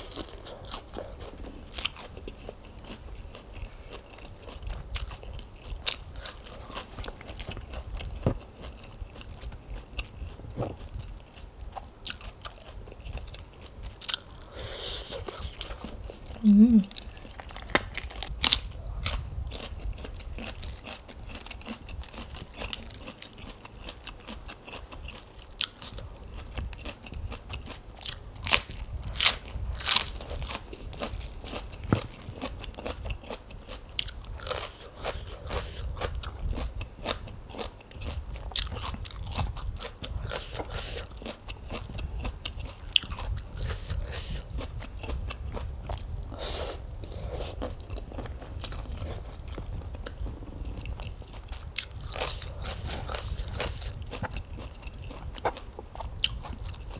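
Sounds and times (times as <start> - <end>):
chewing: 0.0 - 56.9
crunching raw cabbage: 17.0 - 44.7.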